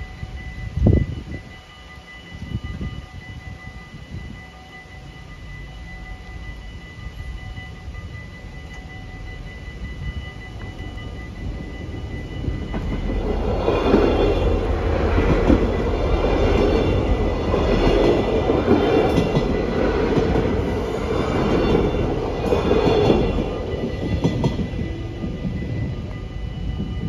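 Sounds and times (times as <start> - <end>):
train wheels rumbling on rails: 0.0 - 27.0.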